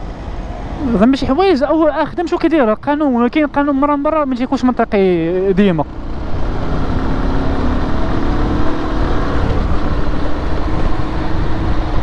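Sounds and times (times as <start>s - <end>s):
wind rumble on microphone: 6.0s - 12.0s.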